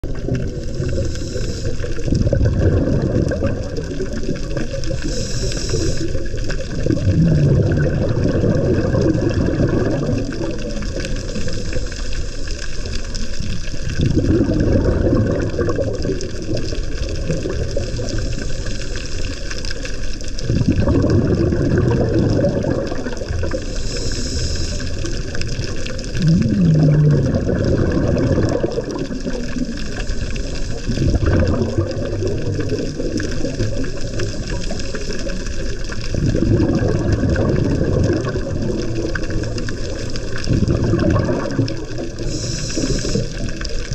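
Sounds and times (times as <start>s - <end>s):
underwater exhaled bubbles rumble: 0.0s - 43.9s
regulator inhale hiss: 0.4s - 2.1s, 4.7s - 6.7s, 11.1s - 13.4s, 18.0s - 19.7s, 23.5s - 26.1s, 29.3s - 30.8s, 33.4s - 35.8s, 42.1s - 43.8s.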